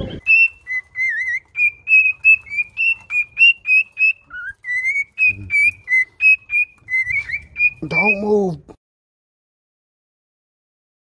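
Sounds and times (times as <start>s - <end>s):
cockatiels chirping: 0.0s - 8.3s.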